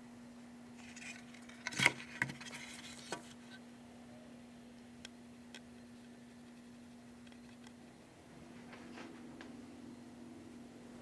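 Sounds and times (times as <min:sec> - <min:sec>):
low hum: 0:02.4 - 0:11.0.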